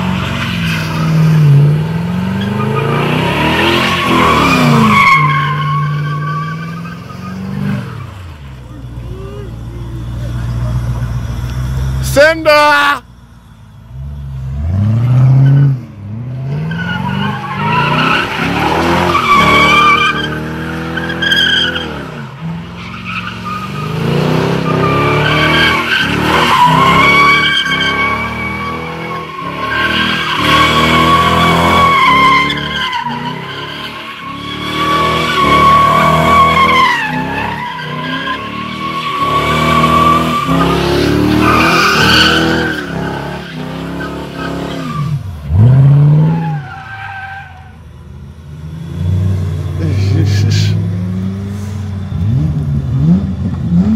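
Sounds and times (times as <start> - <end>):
car engine revving: 0.0 - 53.9
tyres squealing: 2.3 - 13.1, 22.8 - 47.8.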